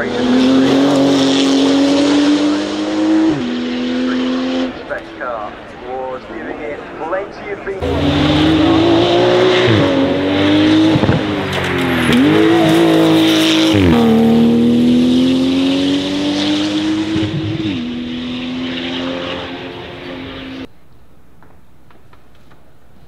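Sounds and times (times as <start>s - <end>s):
race car engine accelerating: 0.0s - 5.2s, 7.8s - 20.7s.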